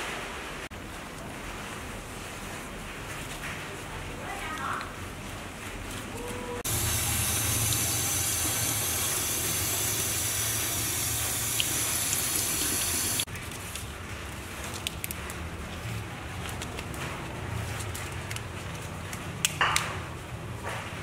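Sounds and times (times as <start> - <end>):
tap water running into sink: 6.7 - 13.3.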